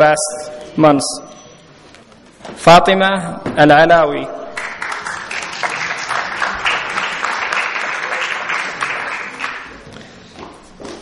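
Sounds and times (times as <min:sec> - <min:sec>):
audience applauding: 0:04.6 - 0:09.8.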